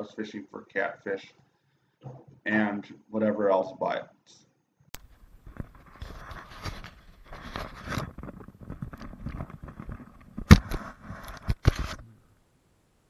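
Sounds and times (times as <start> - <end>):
camera handling rustling and clicks: 5.0 - 12.0.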